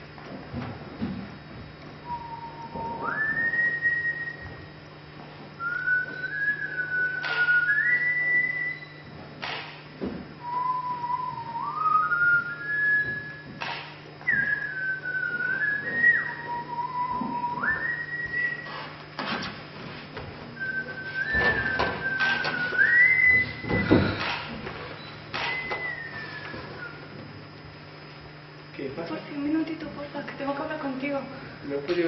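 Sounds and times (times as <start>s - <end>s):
steady low hum: 0.0s - 32.0s
person whistling slow tune: 2.0s - 4.7s, 5.6s - 9.1s, 10.4s - 13.6s, 14.2s - 18.8s, 20.6s - 24.4s, 25.0s - 27.2s
sharp knocks: 9.4s - 10.3s, 13.5s - 14.0s, 21.3s - 25.8s.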